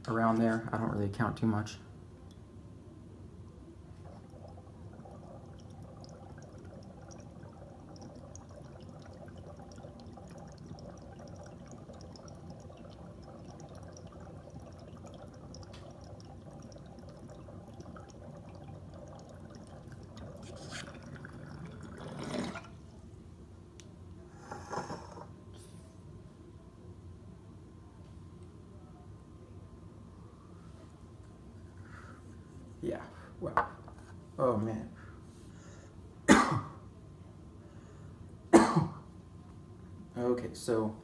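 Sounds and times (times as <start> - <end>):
water bubbler gurgling: 4.0 - 22.8.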